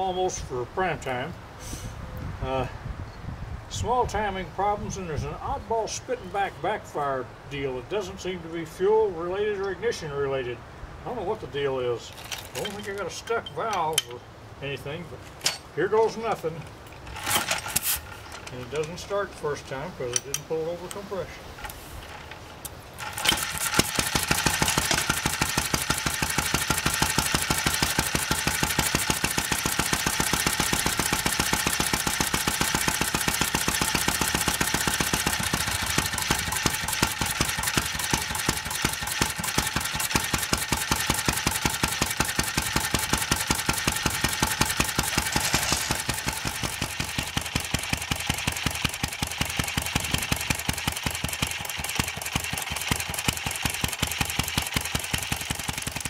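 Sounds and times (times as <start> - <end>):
flywheel spun by hand: 17.0 - 18.5, 23.0 - 56.0
small engine running: 23.0 - 56.0.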